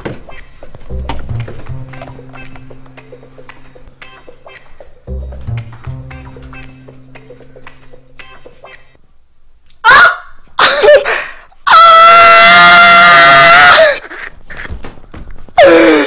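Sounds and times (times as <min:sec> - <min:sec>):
person screaming: 0:09.8 - 0:11.0, 0:11.6 - 0:14.0.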